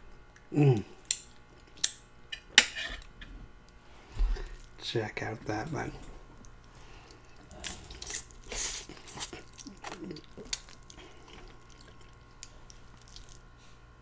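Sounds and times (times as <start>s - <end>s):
quiet chewing: 6.2s - 13.8s
person slurping noodles: 7.4s - 12.2s.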